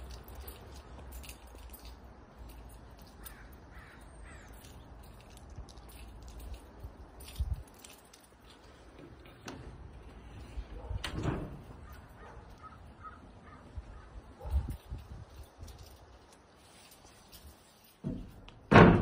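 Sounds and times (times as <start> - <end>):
wind rumble: 9.0 - 16.3
bird calling: 11.8 - 14.3.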